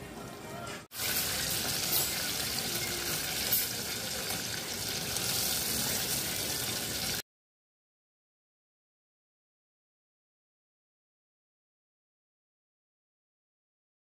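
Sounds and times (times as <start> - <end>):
chicken deep-frying in oil: 0.9 - 7.2.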